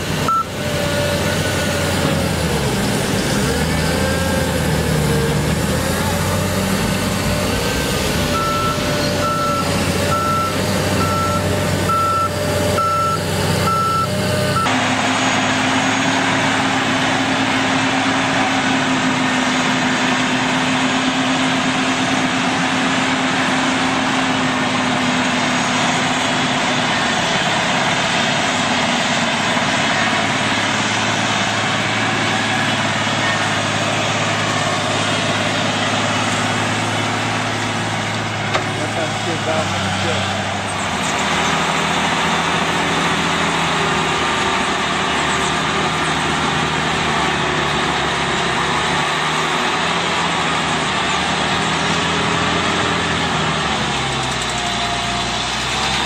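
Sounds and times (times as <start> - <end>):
dozer diesel engine running: 0.0 - 56.0
earth scraper engine: 0.0 - 56.0
reversing alarm beeping: 0.2 - 0.6, 8.2 - 14.7.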